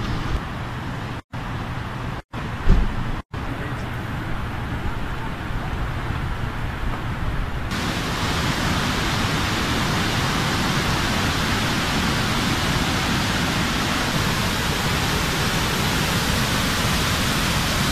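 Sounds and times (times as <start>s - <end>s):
water rushing over rocks: 7.7s - 17.9s.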